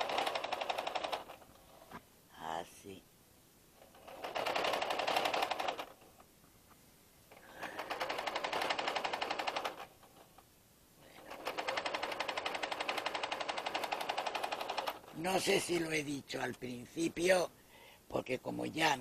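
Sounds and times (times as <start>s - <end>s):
sewing machine stitching: 0.0s - 1.6s, 3.8s - 6.1s, 7.3s - 10.4s, 11.2s - 15.8s.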